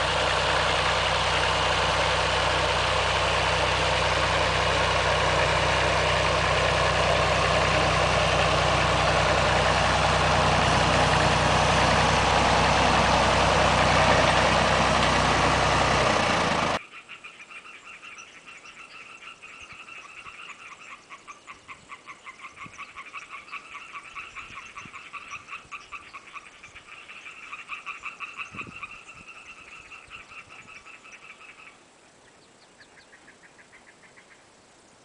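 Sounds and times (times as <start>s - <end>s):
tractor engine running: 0.0s - 16.8s
frogs croaking: 16.8s - 31.9s.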